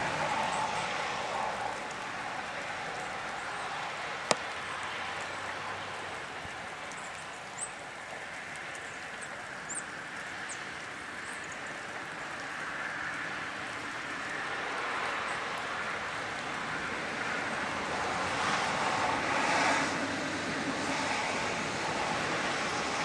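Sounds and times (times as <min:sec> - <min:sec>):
rain falling: 0:00.0 - 0:23.0
small birds chirping: 0:06.9 - 0:07.8.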